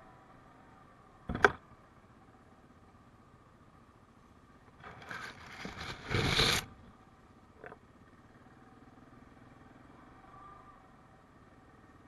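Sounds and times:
pine branches scraping vehicle: 0:04.8 - 0:06.8
atv engine running quietly: 0:06.5 - 0:12.0.

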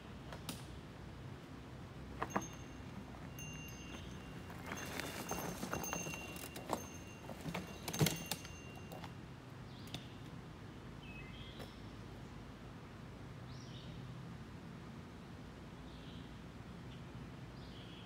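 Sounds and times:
bike clattering over rocks: 0:02.2 - 0:09.1
birds chirping: 0:02.3 - 0:09.0.

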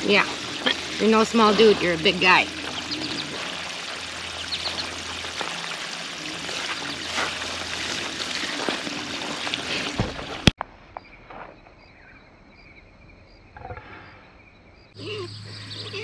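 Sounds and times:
hose water splashing into mud: 0:00.0 - 0:10.6
faint outdoor background: 0:00.0 - 0:16.0.

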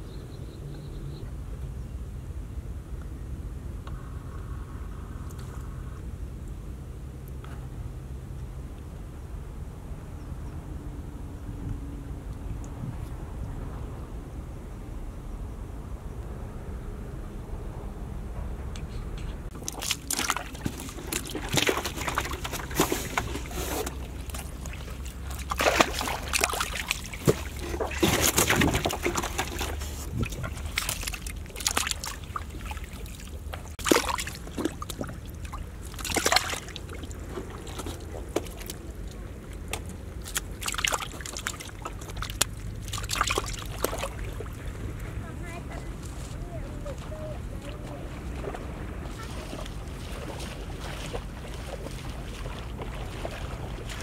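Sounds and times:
fish splashing in water: 0:19.5 - 0:45.0, 0:47.1 - 0:54.0.

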